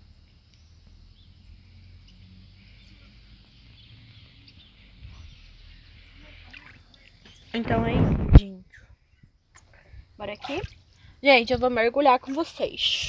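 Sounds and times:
faint bird chirps: 0.5s - 7.6s.

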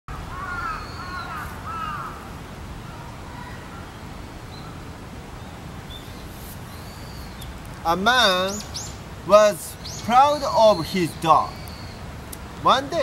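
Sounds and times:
crows cawing: 0.1s - 2.3s.

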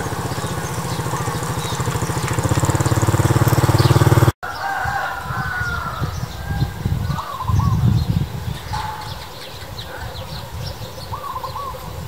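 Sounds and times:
small engine running: 0.0s - 4.4s
wavering bird calls: 0.0s - 12.0s.

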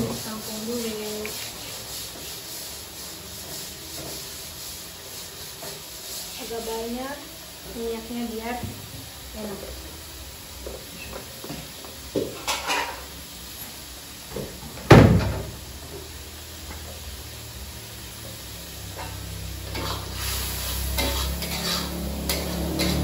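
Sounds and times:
metal spatula scraping a wok: 0.0s - 7.0s, 12.4s - 13.2s, 18.8s - 23.0s
oil sizzling in a wok: 0.0s - 23.0s.

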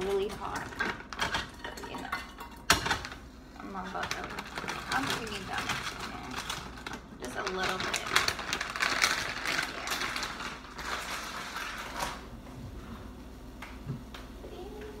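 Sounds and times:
plastic bag crinkling: 3.1s - 12.4s.

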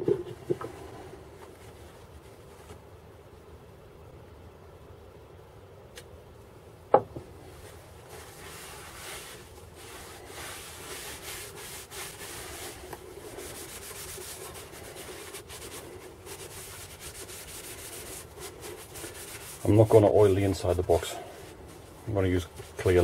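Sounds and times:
rag wiping wood: 7.6s - 23.0s.

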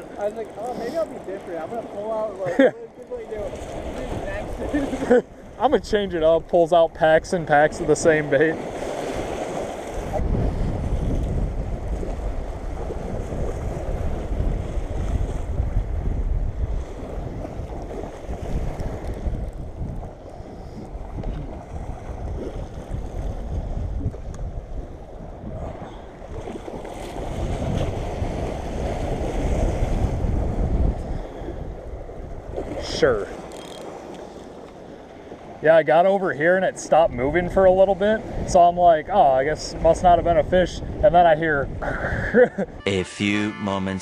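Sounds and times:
waves splashing against seawall: 0.0s - 6.3s, 7.3s - 15.7s
wind buffeting microphone: 8.6s - 33.5s, 37.1s - 38.7s, 39.7s - 42.8s.

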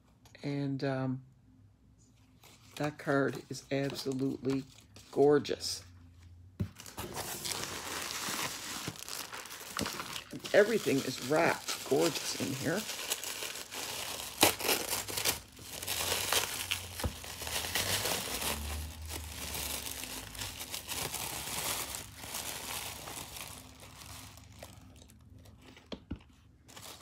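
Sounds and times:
wrapping crinkling: 6.8s - 27.0s.

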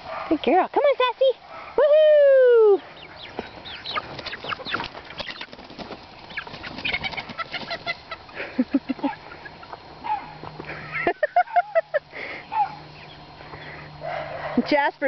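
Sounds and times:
chicks peeping: 2.7s - 10.8s, 11.4s - 14.6s
chicken clucks: 3.0s - 10.2s
wings flapping and scuffling: 3.3s - 8.4s.

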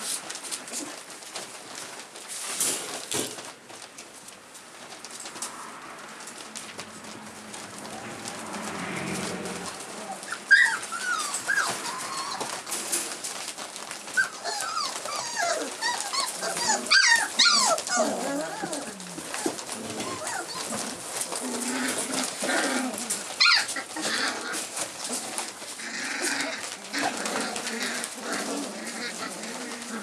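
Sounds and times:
puppies yipping and whining: 9.0s - 30.0s.

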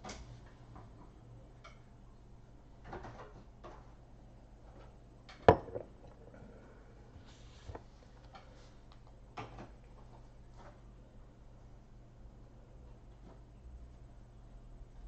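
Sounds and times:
low steady hum: 3.5s - 15.0s.

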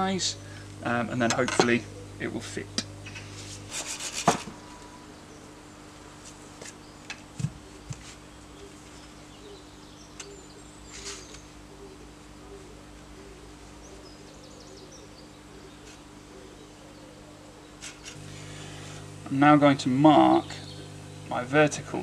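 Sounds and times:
low background hum: 0.0s - 22.0s
knife blade scraping wood: 3.5s - 4.5s.

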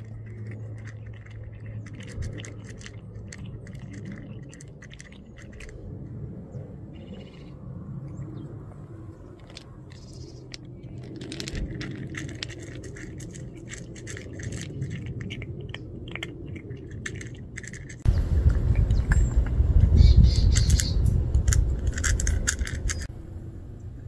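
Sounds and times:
cat crunching dry food: 0.0s - 5.9s, 9.3s - 19.9s, 20.5s - 23.1s
loud low rushing noise: 18.0s - 24.0s.

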